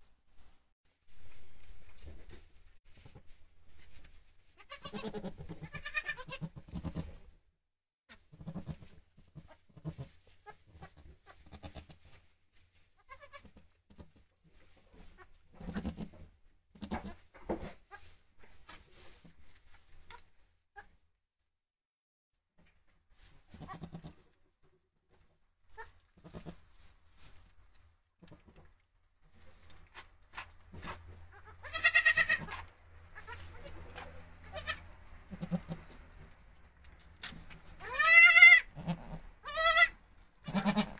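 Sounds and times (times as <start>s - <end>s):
young goat bleating: 4.6s - 7.2s, 8.4s - 12.0s, 13.0s - 13.6s, 15.1s - 16.2s, 16.8s - 17.2s, 23.5s - 24.2s, 25.7s - 26.6s, 31.3s - 36.0s, 37.8s - 40.9s
goat low calls: 37.8s - 40.9s.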